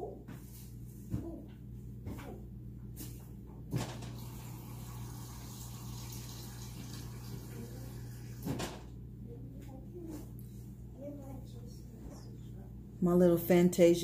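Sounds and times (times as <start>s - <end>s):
kitchen tap running: 4.0s - 8.8s
steady low hum: 7.6s - 14.0s.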